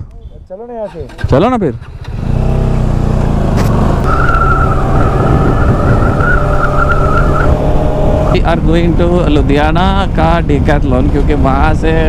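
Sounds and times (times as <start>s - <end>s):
motorcycle engine hum: 0.9s - 12.0s
wind noise: 3.6s - 12.0s
high whistle-like tone: 4.0s - 7.6s.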